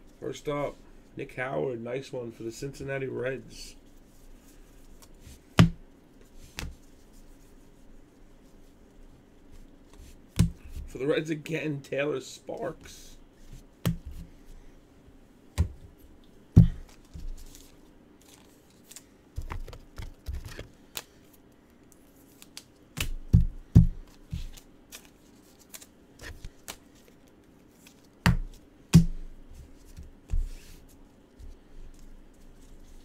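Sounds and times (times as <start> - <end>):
cards handled on a table: 6.2 - 7.1, 16.6 - 28.6, 29.6 - 33.0.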